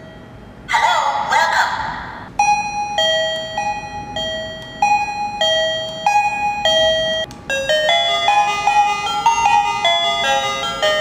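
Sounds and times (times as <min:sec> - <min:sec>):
faster doorbell tune: 0:02.4 - 0:11.0
two-note electronic doorbell chime: 0:02.4 - 0:11.0.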